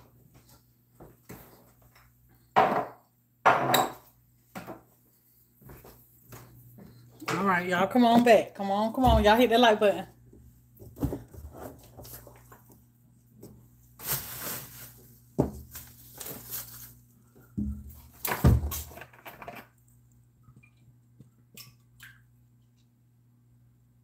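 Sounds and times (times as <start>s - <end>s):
items rustling in cabinet: 10.8s - 19.7s.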